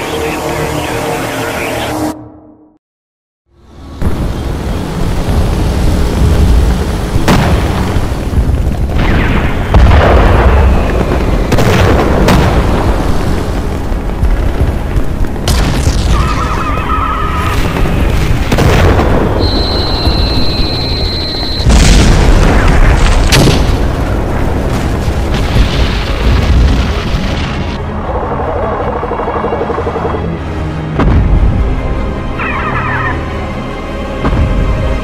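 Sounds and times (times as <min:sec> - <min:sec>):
continuous low rumble: 0:03.5 - 0:33.0
explosions and cannon booms: 0:07.2 - 0:16.8, 0:17.4 - 0:20.8, 0:21.4 - 0:27.8.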